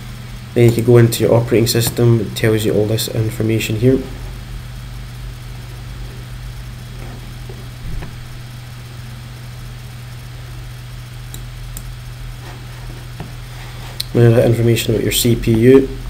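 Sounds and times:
low electrical hum: 0:00.0 - 0:16.0
soft thump: 0:07.8 - 0:08.4.

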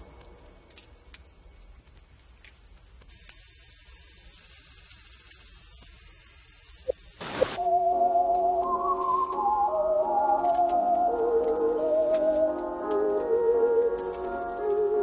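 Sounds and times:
faint static: 0:06.8 - 0:15.0
low hum: 0:07.5 - 0:13.2
background music with melodic lead: 0:07.6 - 0:15.0.

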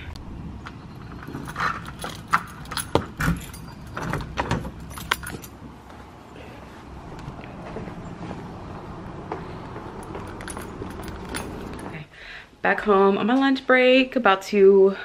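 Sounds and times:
keys jangling: 0:01.0 - 0:05.6, 0:10.0 - 0:12.0.

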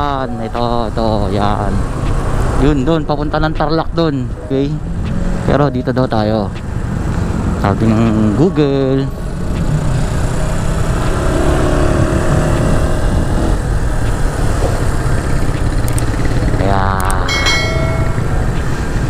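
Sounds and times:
wind and road noise: 0:00.0 - 0:19.0
click and ringing chime: 0:17.3 - 0:18.6.

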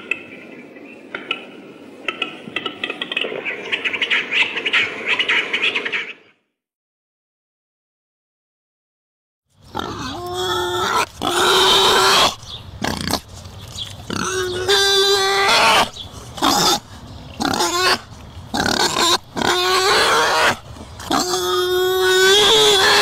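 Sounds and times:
shrill harsh animal call: 0:14.2 - 0:16.8, 0:18.6 - 0:23.0.

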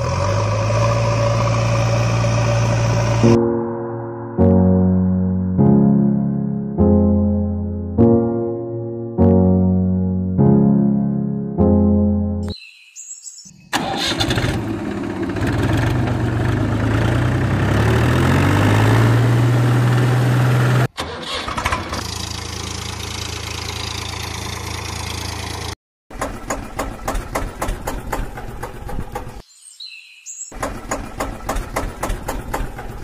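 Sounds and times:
tractor engine revving: 0:00.0 - 0:03.4, 0:13.7 - 0:29.4.

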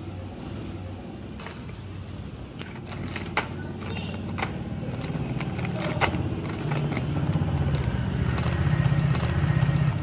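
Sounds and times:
motor engine running: 0:03.9 - 0:10.0.

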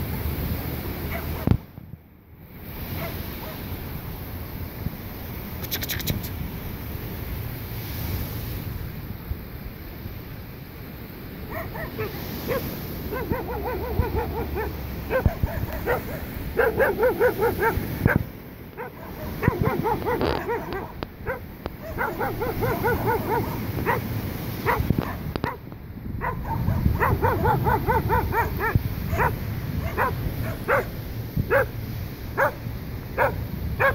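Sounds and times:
dog yapping: 0:11.5 - 0:18.2, 0:18.8 - 0:24.1, 0:24.7 - 0:25.6, 0:26.2 - 0:30.9, 0:31.5 - 0:31.7, 0:32.4 - 0:32.6, 0:33.2 - 0:33.9.

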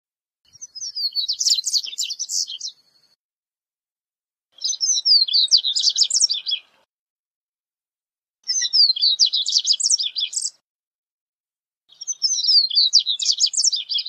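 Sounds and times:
bird twittering song: 0:00.5 - 0:03.2, 0:04.6 - 0:06.9, 0:08.4 - 0:10.6, 0:11.9 - 0:14.0.

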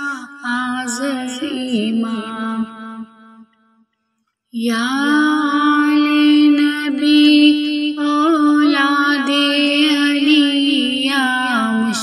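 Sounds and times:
person chanting: 0:00.0 - 0:03.2, 0:04.6 - 0:12.0.

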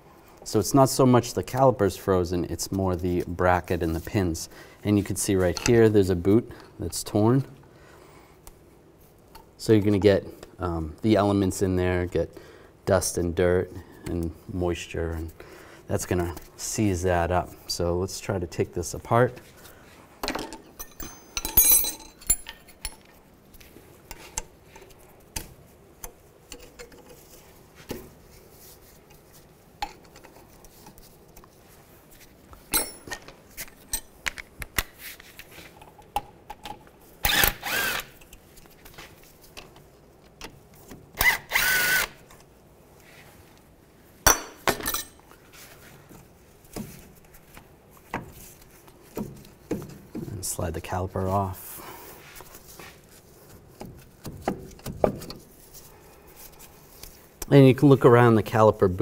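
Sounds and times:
cordless power tool running: 0:37.3 - 0:38.2, 0:41.4 - 0:42.2.

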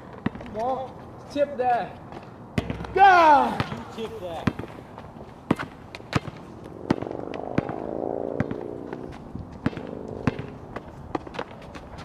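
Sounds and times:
basketball bouncing on asphalt: 0:00.0 - 0:01.1, 0:01.8 - 0:07.0, 0:08.4 - 0:12.0
low hum: 0:04.8 - 0:12.0.

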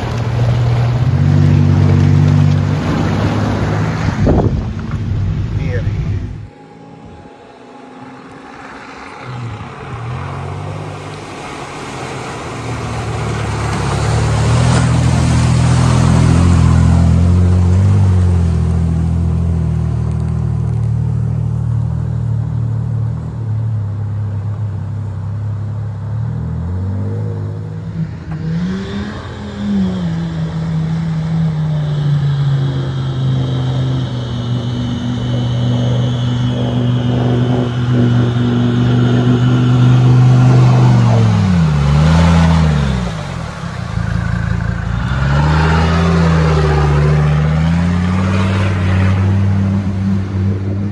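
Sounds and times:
water rushing and splashing: 0:00.0 - 0:06.6, 0:07.8 - 0:23.2, 0:23.8 - 0:50.9
engine revving hard: 0:33.4 - 0:50.9.

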